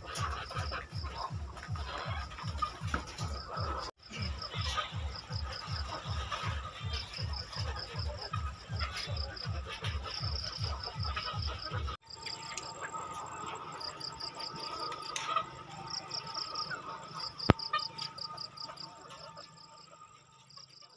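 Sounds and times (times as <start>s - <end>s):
low rhythmic music beat: 0.0s - 12.0s
insects chirping in pulses: 12.0s - 20.7s.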